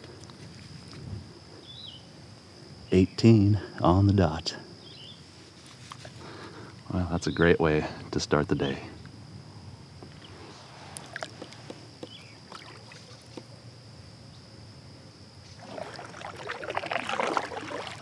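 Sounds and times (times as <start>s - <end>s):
light water sounds: 10.9s - 13.5s, 15.4s - 18.0s
kayak paddle splashing: 11.0s - 13.5s, 15.4s - 18.0s.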